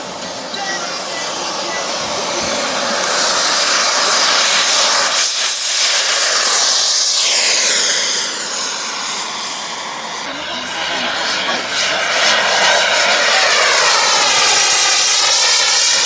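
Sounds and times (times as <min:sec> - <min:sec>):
model jet engine roaring: 0:00.0 - 0:16.0.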